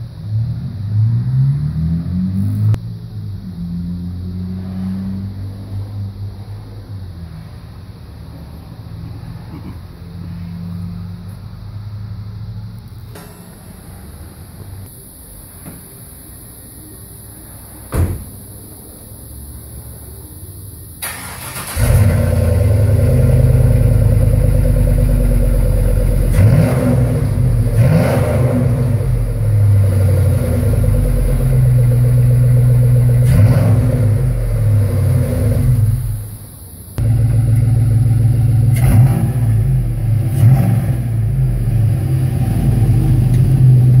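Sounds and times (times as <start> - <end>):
deep engine exhaust revving: 0.2 - 6.5, 21.6 - 36.4, 37.0 - 44.0.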